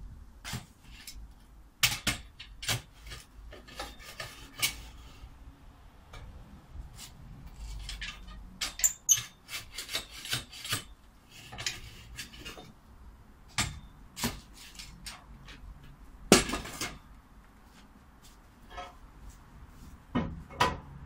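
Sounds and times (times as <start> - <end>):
spade scraping earth and stones: 2.7 - 5.3, 6.9 - 12.8, 13.8 - 15.2.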